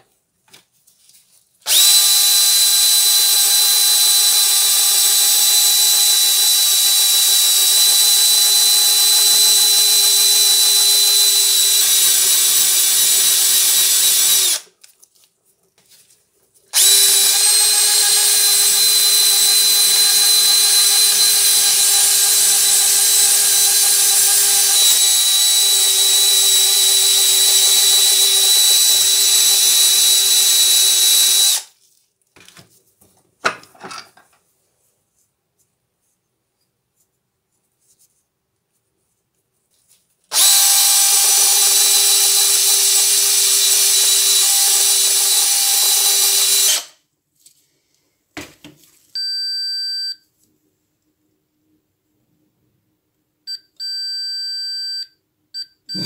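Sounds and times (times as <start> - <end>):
power drill whining: 1.7 - 14.7, 16.7 - 31.7, 40.3 - 47.0.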